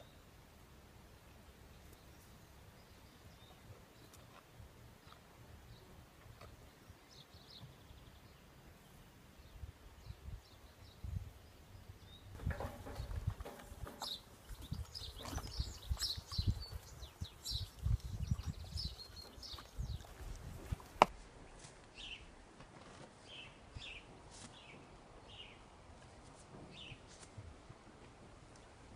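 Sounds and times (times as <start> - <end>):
small birds chirping: 1.1 - 21.1.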